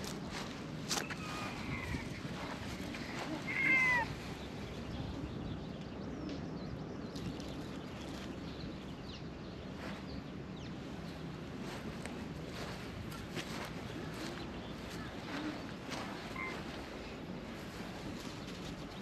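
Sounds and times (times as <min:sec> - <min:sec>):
cat meowing: 0:03.3 - 0:04.1.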